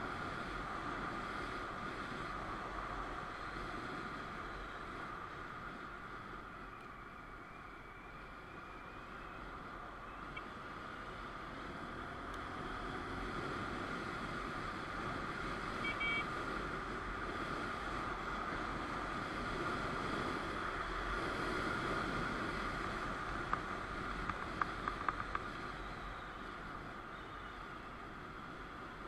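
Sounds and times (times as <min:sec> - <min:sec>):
motorcycle riding and wind noise: 0:00.0 - 0:29.0
short high beeps: 0:15.8 - 0:16.2
sharp clicks: 0:23.4 - 0:25.6.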